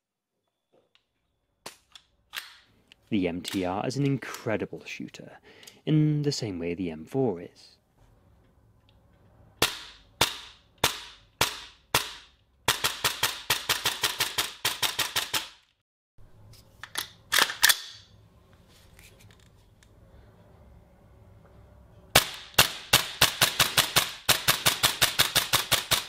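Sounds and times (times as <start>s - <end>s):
airsoft rifle shots: 9.6s - 15.6s, 22.2s - 26.0s.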